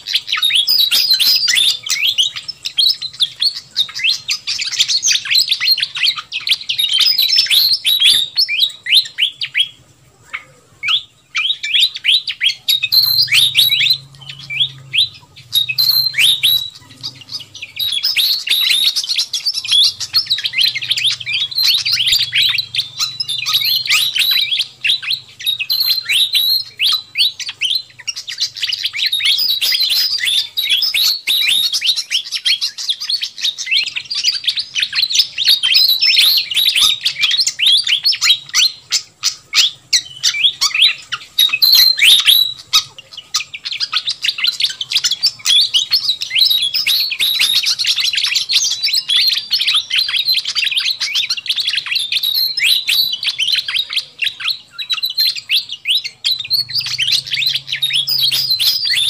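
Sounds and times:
bird chattering call: 0:00.0 - 0:59.0.

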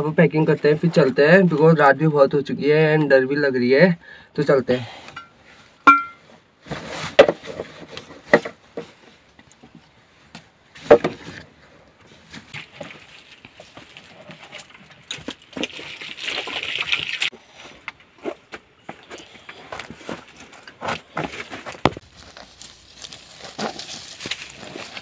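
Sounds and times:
scraping rustle: 0:05.6 - 0:09.3, 0:19.0 - 0:25.0
rustling of fabric and bags: 0:17.5 - 0:25.0.

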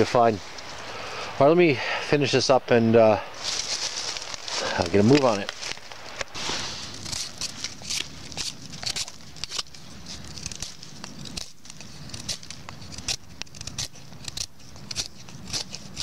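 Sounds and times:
knife scraping wooden stick: 0:03.4 - 0:16.0.

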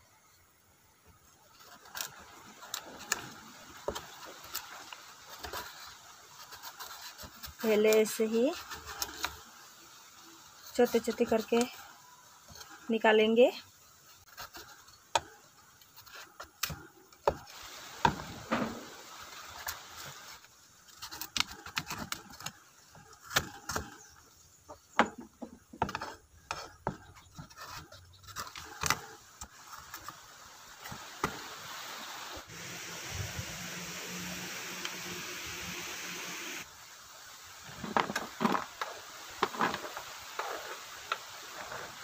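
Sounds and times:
knife scraping coconut flesh: 0:01.6 - 0:09.5, 0:14.1 - 0:18.9, 0:20.8 - 0:24.2, 0:25.8 - 0:30.2.

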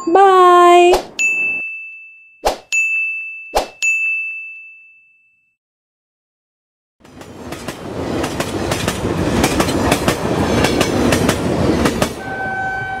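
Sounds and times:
horn-like tone: 0:12.2 - 0:13.0.

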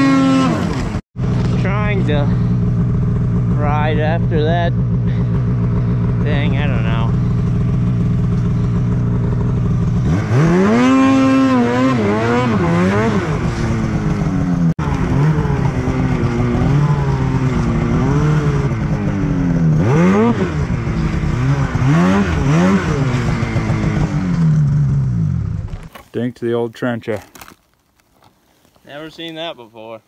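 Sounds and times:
snowmobile engine revving: 0:00.0 - 0:25.7.

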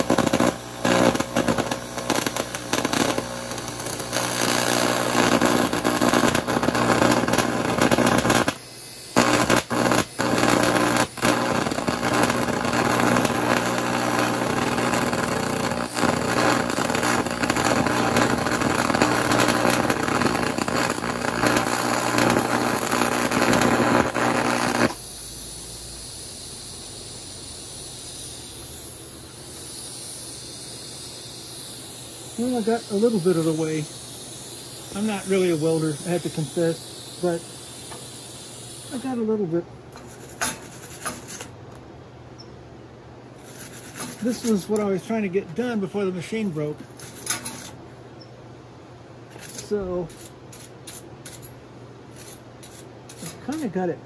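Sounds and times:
steady hiss: 0:00.0 - 0:41.6, 0:42.8 - 0:48.0, 0:48.6 - 0:54.0
welding arc buzzing: 0:00.0 - 0:41.6, 0:43.4 - 0:47.8.

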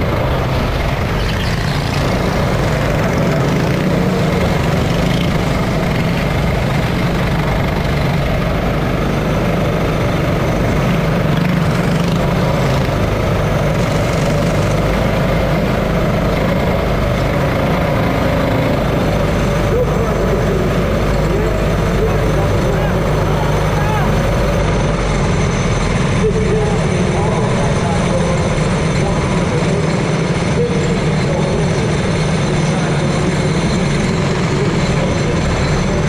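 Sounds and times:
go-kart engines running: 0:00.0 - 0:36.0.

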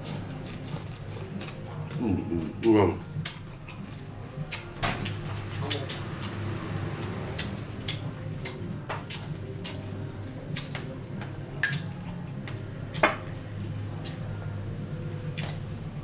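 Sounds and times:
chewing: 0:00.0 - 0:06.4, 0:07.4 - 0:09.9, 0:14.0 - 0:15.6.

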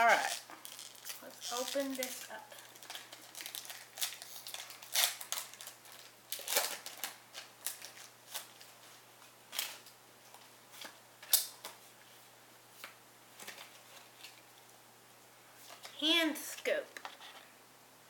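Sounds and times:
foil wrapper crinkling and tearing: 0:00.0 - 0:08.8, 0:09.5 - 0:10.0.

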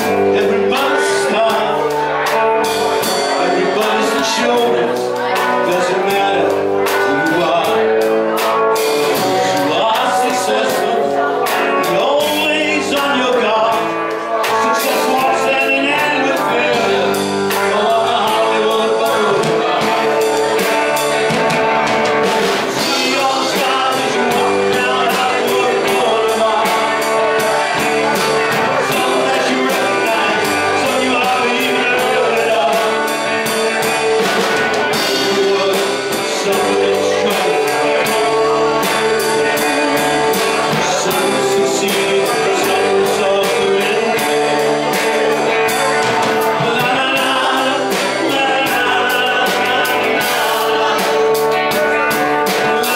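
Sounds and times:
live rock band playing: 0:00.0 - 0:52.9
women singing: 0:22.7 - 0:33.2, 0:34.9 - 0:52.9.

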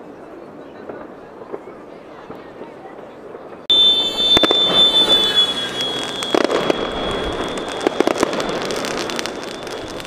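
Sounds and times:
firework bangs and crackling: 0:00.8 - 0:10.0
firework whistle: 0:03.7 - 0:10.0.

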